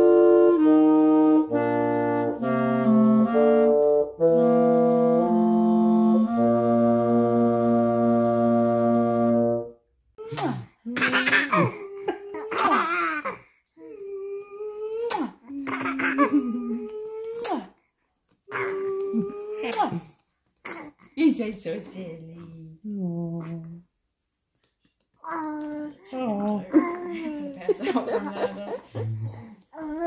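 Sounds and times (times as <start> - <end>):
clarinet and bassoon duet: 0.0 - 9.8, 15.5 - 17.0.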